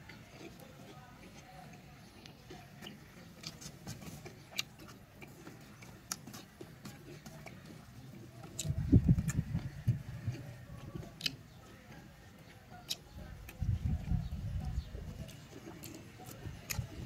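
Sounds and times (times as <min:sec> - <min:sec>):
faint background noise: 0:00.0 - 0:17.0.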